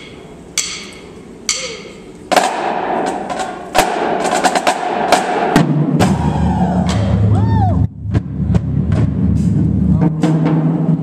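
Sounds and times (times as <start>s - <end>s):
drumstick clicks counting time: 0.0s - 2.3s
marching drumline playing: 0.0s - 11.0s.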